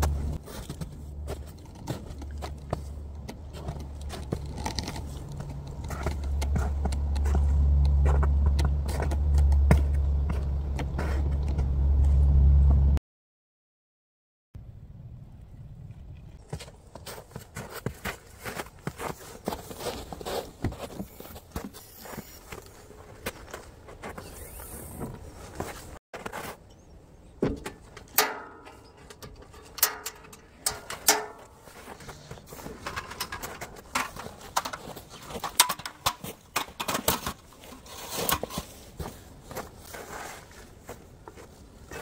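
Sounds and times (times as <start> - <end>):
footsteps in snow: 16.4 - 26.7, 37.8 - 42.0.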